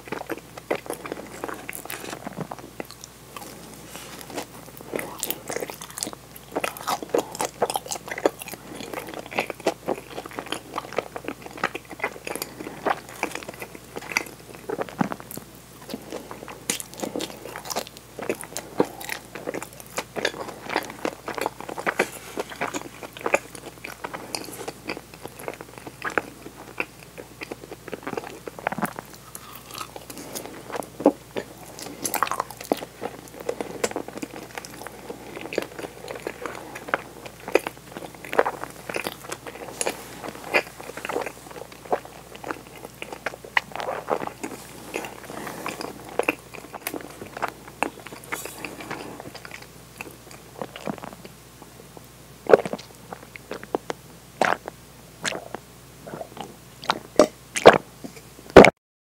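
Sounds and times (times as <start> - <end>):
biting and chewing: 0.0 - 51.4, 52.5 - 58.7
wet mouth clicks and crackles: 52.5 - 58.2.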